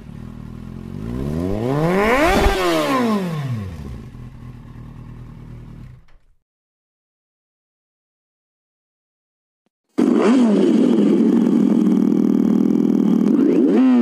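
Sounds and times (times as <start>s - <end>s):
motorcycle engine revving: 0.0s - 6.4s, 10.0s - 14.0s.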